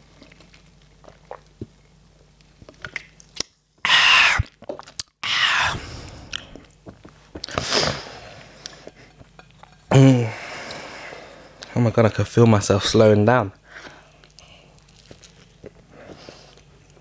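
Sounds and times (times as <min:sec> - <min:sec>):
loud breathy sounds: 0:05.2 - 0:06.7.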